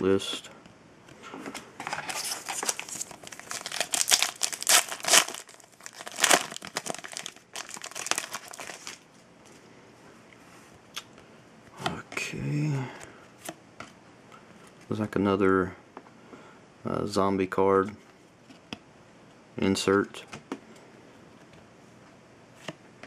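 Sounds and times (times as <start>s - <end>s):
foil wrapper crinkling and tearing: 2.0s - 9.0s.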